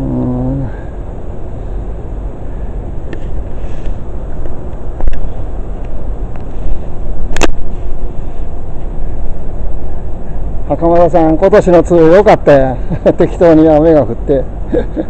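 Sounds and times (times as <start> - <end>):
low outdoor rumbling: 0.0 - 15.0
sharp click: 4.4 - 6.5.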